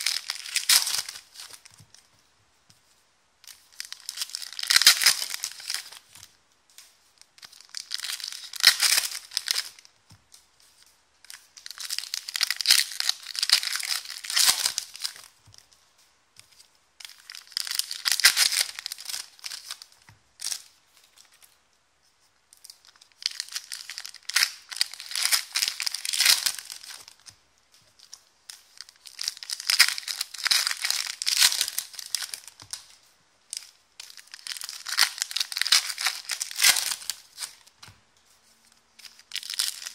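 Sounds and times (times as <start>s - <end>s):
foil wrappers tearing and crinkling: 0.0s - 1.6s, 11.6s - 15.2s, 17.1s - 20.6s, 23.2s - 27.1s, 28.8s - 32.9s, 34.0s - 37.6s, 39.0s - 39.9s.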